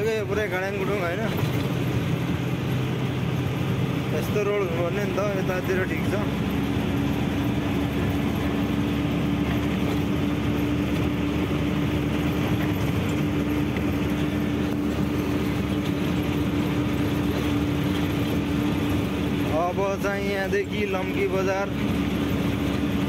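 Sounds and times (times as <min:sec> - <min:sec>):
truck engine and road drone: 0:00.0 - 0:23.0.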